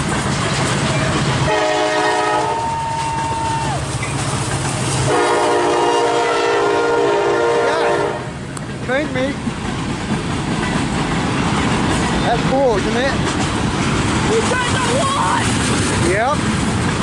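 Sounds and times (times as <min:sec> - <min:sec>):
train rumble: 0:00.0 - 0:17.0
locomotive air horn blasts: 0:01.5 - 0:03.0, 0:05.1 - 0:08.4.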